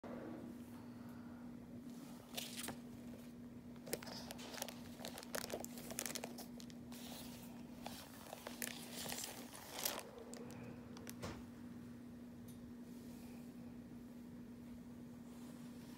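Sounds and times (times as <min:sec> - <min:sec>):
low hum: 0:00.0 - 0:15.9
paper crinkling and rustling: 0:02.3 - 0:11.2.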